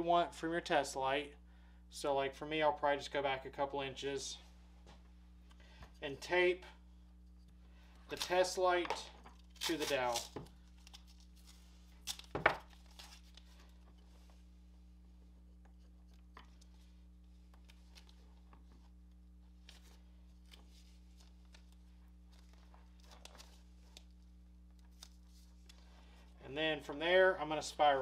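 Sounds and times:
steady low hum: 0:00.0 - 0:28.0
tape rustles and clicks: 0:07.2 - 0:14.4, 0:15.5 - 0:25.9.

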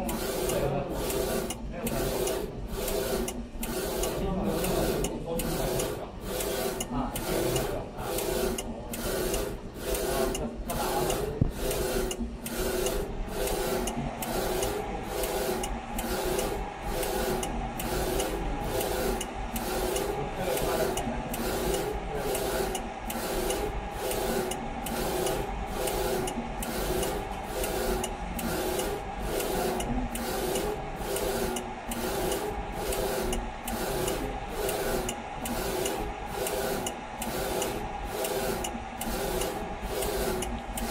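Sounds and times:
printer carriage whirring: 0:00.0 - 0:40.9.

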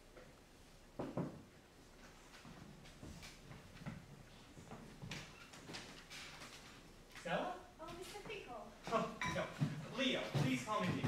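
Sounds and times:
faint footsteps on stage floor: 0:09.4 - 0:11.0.

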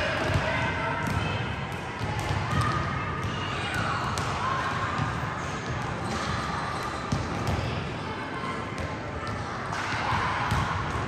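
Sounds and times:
basketballs bouncing on gym floor: 0:00.0 - 0:07.8, 0:08.7 - 0:11.0.

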